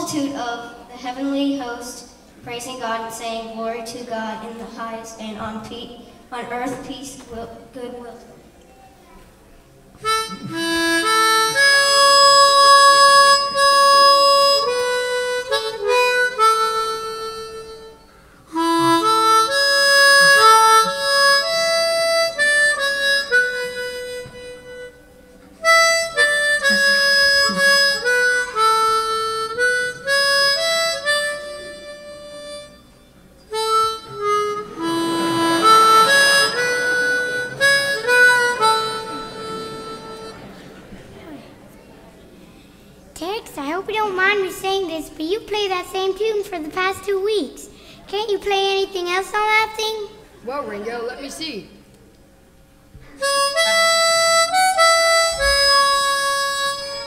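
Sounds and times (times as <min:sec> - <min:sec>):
harmonica playing: 0:10.0 - 0:41.0, 0:53.2 - 0:57.0.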